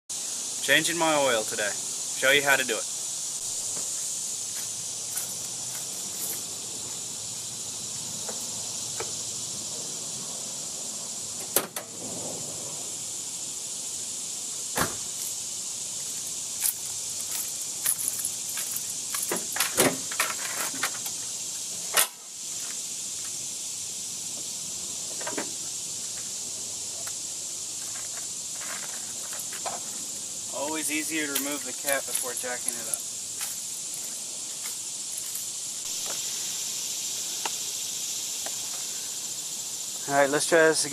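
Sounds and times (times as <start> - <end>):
steady high hiss: 0.1 - 40.9
truck door and hood clunks: 14.7 - 15.2.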